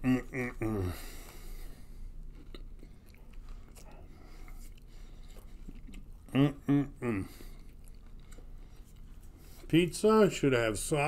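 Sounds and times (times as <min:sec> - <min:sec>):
man's muffled vocal sounds: 0:00.0 - 0:01.2, 0:06.3 - 0:07.5.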